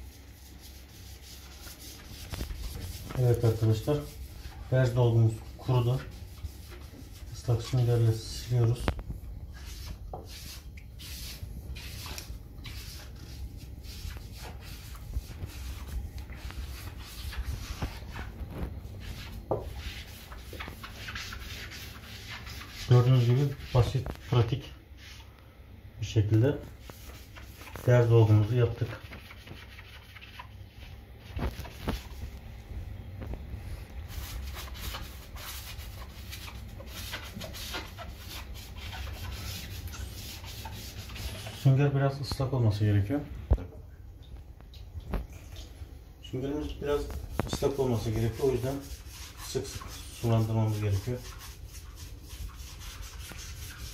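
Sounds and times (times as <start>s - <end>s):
sponge scrubbing wall tiles: 0.0s - 25.3s, 26.0s - 32.4s, 33.2s - 42.9s, 46.4s - 53.9s.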